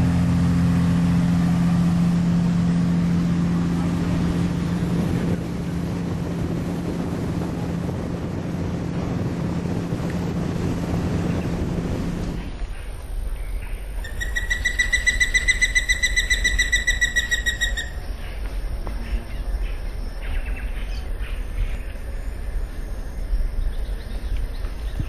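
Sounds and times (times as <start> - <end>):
low rumble: 0.0 - 25.0
faint bird chirps: 12.7 - 22.3.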